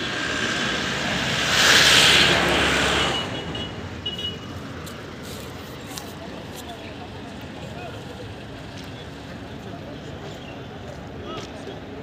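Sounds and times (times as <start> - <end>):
vehicle passing: 0.0 - 3.9.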